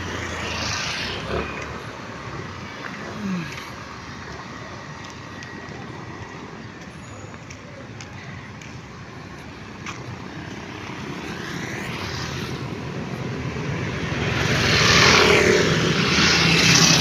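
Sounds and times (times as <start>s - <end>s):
motorcycle passing: 0.0s - 3.8s, 10.4s - 17.0s
road traffic passing: 0.0s - 17.0s.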